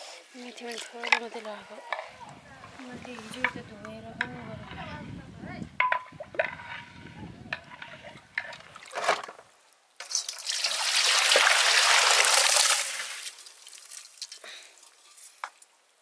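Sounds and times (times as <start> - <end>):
rush of water: 10.1 - 15.4.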